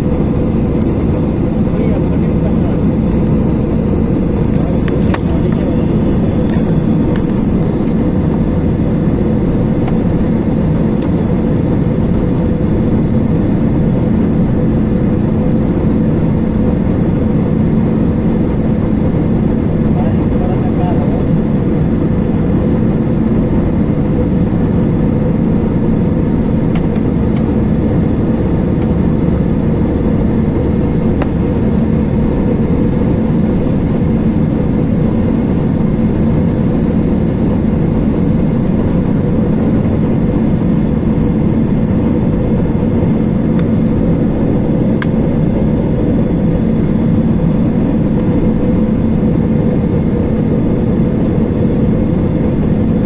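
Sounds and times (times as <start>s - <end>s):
jet engines droning: 0.0s - 53.0s
low hum: 0.0s - 53.0s.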